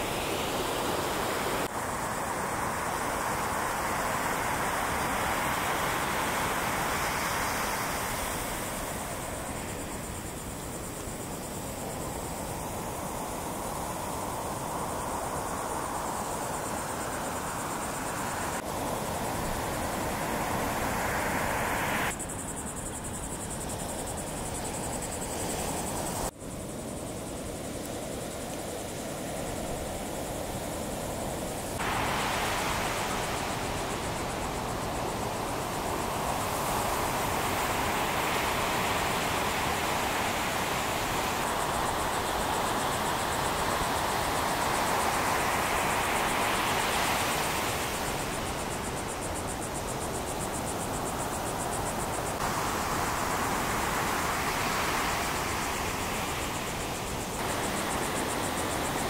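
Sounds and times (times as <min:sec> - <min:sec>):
ocean surf breaking: 0:00.0 - 0:10.2, 0:31.5 - 0:49.6, 0:51.0 - 0:59.0
wind: 0:00.0 - 0:59.0.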